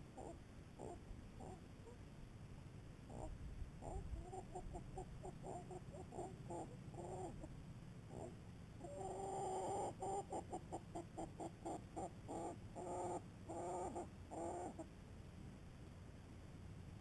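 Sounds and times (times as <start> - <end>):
hen clucking: 0.0 - 2.0, 3.1 - 7.5, 8.1 - 14.9.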